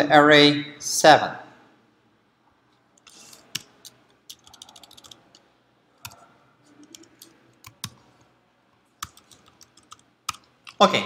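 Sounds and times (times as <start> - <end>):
keyboard typing and clicking: 3.0 - 5.4, 6.0 - 8.2, 9.0 - 10.8.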